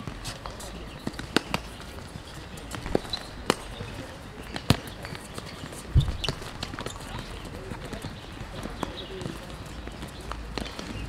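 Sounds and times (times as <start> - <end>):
ball thudding on hard court: 6.0 - 6.9.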